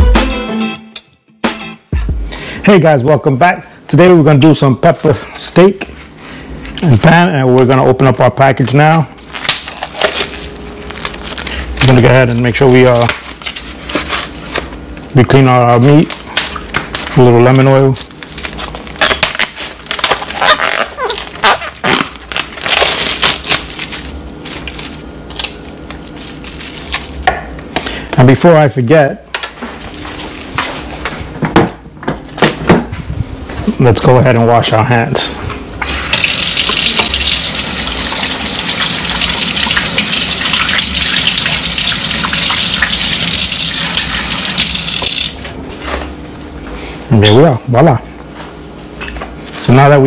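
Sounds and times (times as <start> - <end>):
plastic wrap crinkling: 9.2 - 14.8, 15.7 - 27.2, 36.2 - 45.5
faucet running: 36.2 - 45.4.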